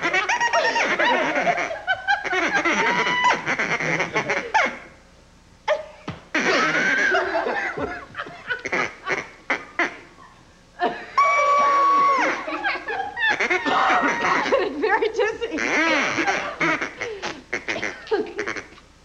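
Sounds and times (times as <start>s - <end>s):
hand-held duck calls quacking: 0.0s - 4.9s, 6.4s - 7.3s, 8.5s - 10.2s, 13.2s - 14.7s, 15.5s - 18.8s.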